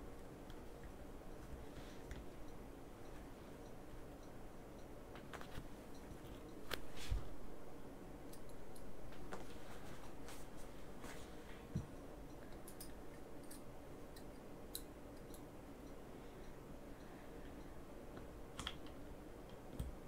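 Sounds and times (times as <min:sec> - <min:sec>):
small tools clicking and tapping: 0:11.8 - 0:15.5.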